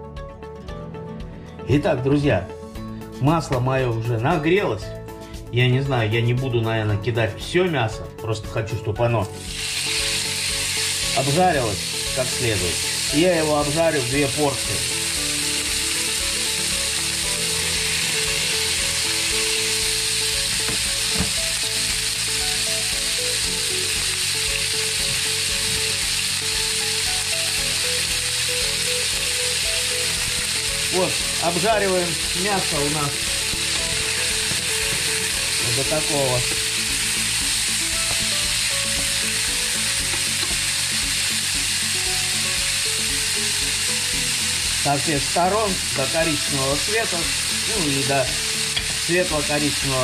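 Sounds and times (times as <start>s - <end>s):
meat sizzling in a frying pan: 9.3s - 50.0s.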